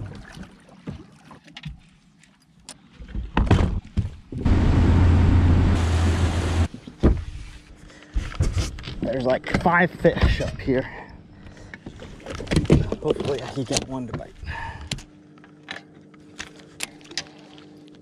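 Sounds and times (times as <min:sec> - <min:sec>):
boat motor humming: 0:04.4 - 0:06.7.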